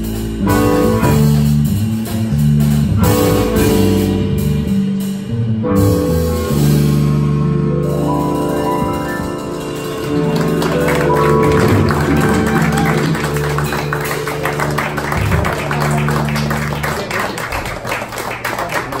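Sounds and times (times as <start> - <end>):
audience clapping: 9.9 - 19.0.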